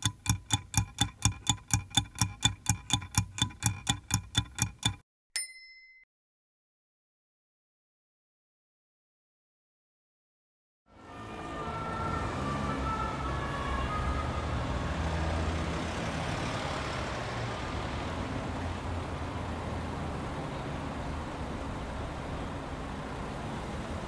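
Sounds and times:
truck engine driving: 11.0 - 24.0.

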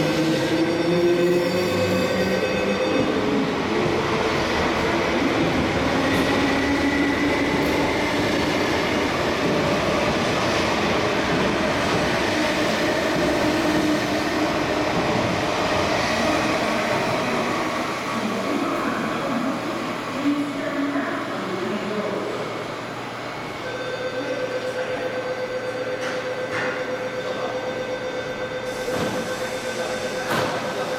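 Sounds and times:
train wheels rumbling on rail: 0.1 - 20.2.

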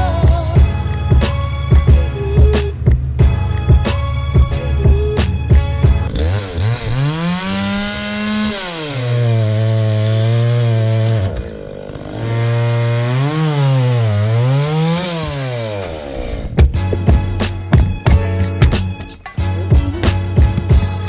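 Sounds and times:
chainsaw cutting a log: 5.0 - 18.3.

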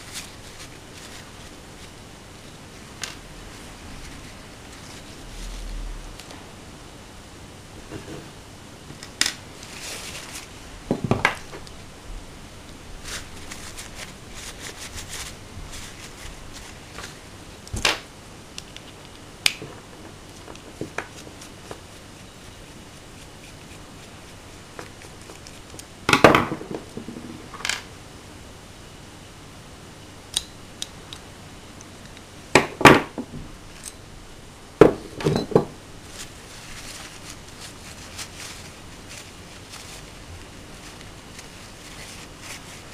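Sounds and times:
paper towel rustling: 0.0 - 6.6, 9.4 - 12.0, 12.8 - 17.6, 19.8 - 25.9, 36.0 - 42.9.

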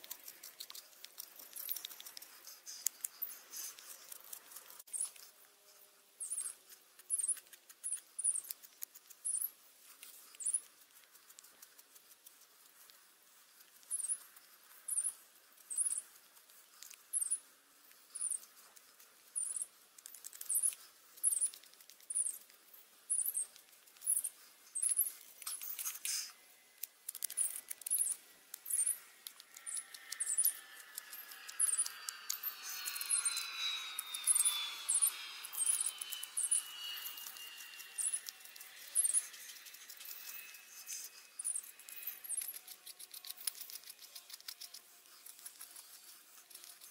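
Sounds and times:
knife scraping wood: 24.1 - 46.9
falling whine: 28.7 - 42.2.

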